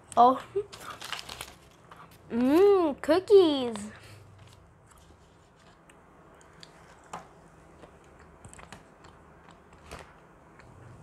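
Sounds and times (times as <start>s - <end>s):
close-miked chewing: 4.4s - 11.0s.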